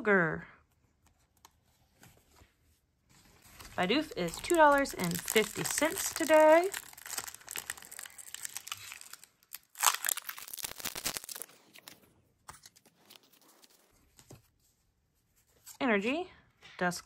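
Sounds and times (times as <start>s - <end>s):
foil wrapper crinkling: 3.6s - 12.0s
foil wrapper ripping: 4.3s - 12.0s.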